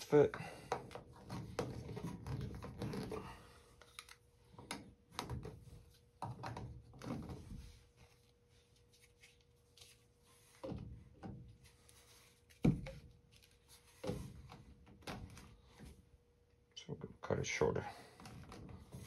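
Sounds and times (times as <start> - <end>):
plastic pipe fittings knocking: 0.6 - 3.4, 4.5 - 7.7.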